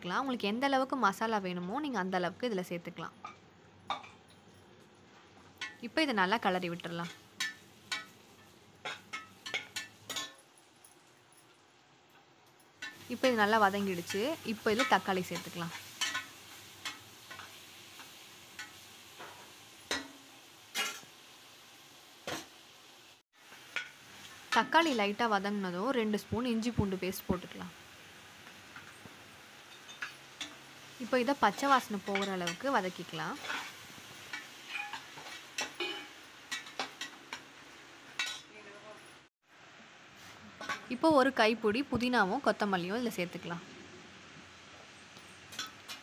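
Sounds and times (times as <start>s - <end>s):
food sizzling in oil: 0.0s - 12.0s, 12.6s - 46.0s
metal spatula scraping pot: 33.4s - 37.1s.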